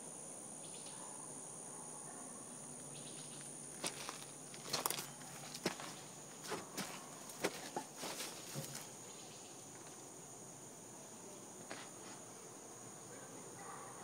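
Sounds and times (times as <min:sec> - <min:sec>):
insects chirring: 0:00.0 - 0:14.0
scuffs and light knocks: 0:03.9 - 0:08.9.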